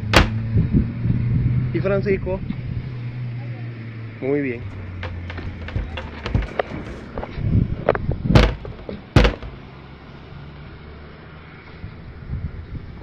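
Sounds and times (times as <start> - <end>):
small knocks and clicks: 0.0 - 0.4, 4.7 - 7.3, 7.9 - 9.6
door banging: 0.0 - 0.5, 4.7 - 7.3, 8.4 - 9.7.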